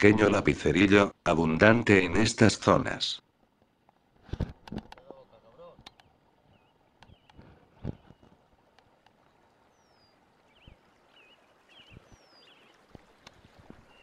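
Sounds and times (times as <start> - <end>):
knocks and rustles of handling: 3.6 - 5.2
small birds chirping: 5.0 - 8.4, 9.1 - 13.1.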